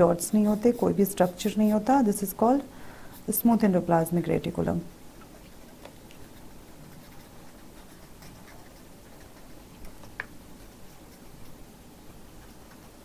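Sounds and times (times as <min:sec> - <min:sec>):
pen scratching on paper: 0:00.2 - 0:02.2, 0:05.2 - 0:11.6, 0:12.4 - 0:13.0.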